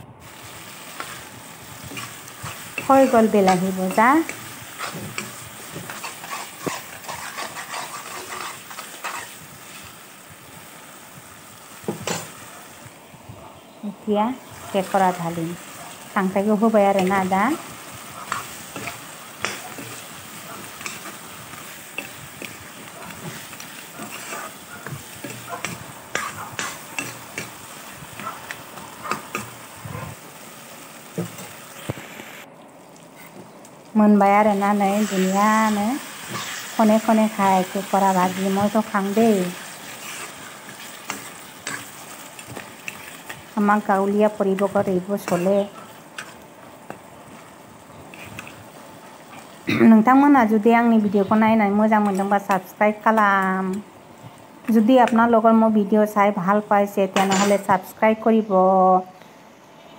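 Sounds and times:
masala sizzling in a pan: 0.0s - 59.9s
spatula scraping a pan: 0.6s - 10.0s, 17.0s - 30.2s, 36.1s - 37.2s, 37.9s - 44.0s, 48.1s - 48.6s, 57.2s - 57.7s.

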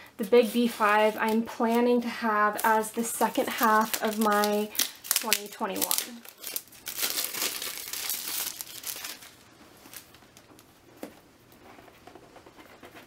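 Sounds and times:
plastic wrap crinkling and tearing: 0.4s - 10.7s.

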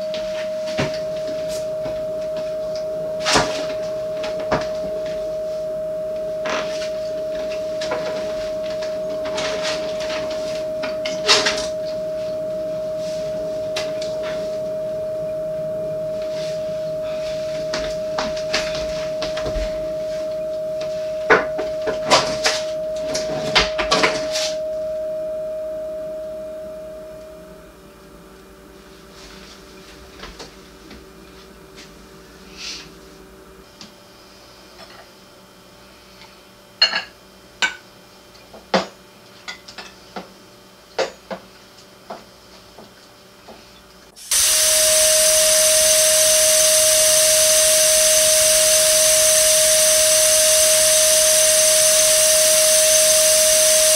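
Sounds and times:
steady mid-pitched tone: 0.0s - 27.8s, 44.3s - 53.9s.

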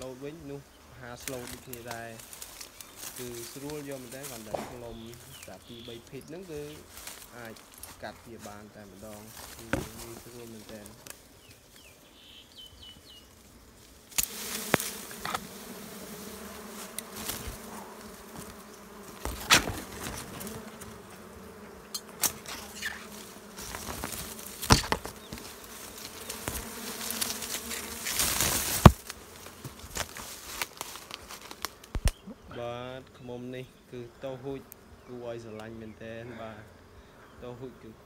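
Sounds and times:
honeybees buzzing: 0.0s - 38.0s
shears snipping: 1.2s - 5.9s, 14.1s - 15.5s, 16.7s - 21.2s, 21.8s - 32.2s.

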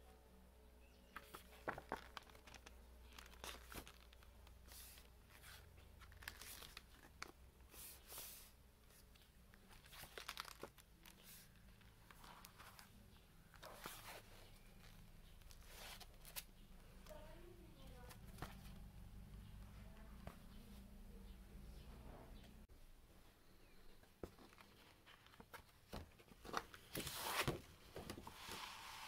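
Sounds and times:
pages clicking on wire binding: 1.2s - 7.4s, 9.6s - 12.9s
paper pages turning: 1.2s - 16.5s, 24.3s - 29.0s.

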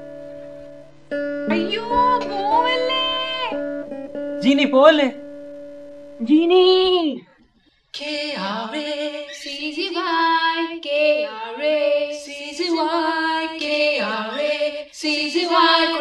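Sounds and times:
high voice singing swooping notes: 1.5s - 3.7s.

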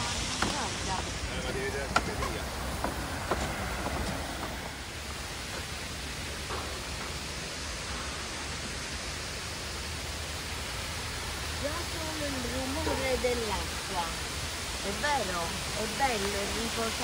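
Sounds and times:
waterfall pouring down rock: 0.0s - 17.0s.

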